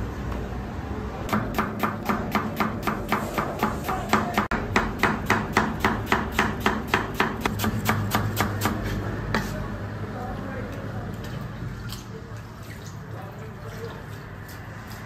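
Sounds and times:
knife chopping on cutting board: 1.3s - 9.6s.

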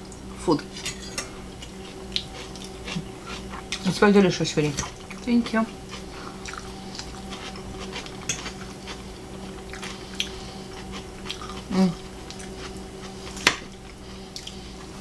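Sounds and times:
forks clinking on plates: 0.8s - 1.3s, 8.2s - 8.7s.

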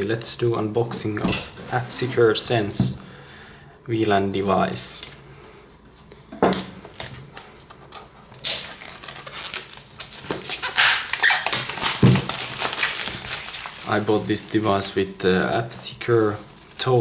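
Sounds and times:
plastic wrap tearing and crinkling: 7.0s - 16.9s.

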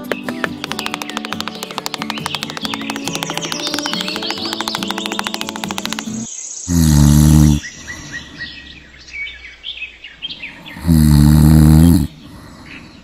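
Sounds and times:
birds chirping: 0.0s - 13.0s
cartoon snoring: 6.1s - 8.4s, 10.7s - 12.6s.

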